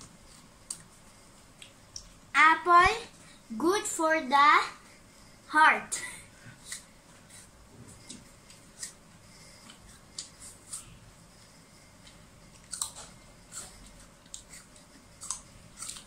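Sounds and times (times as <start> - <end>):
child chewing crisp apple: 0.0 - 2.3, 6.3 - 16.0.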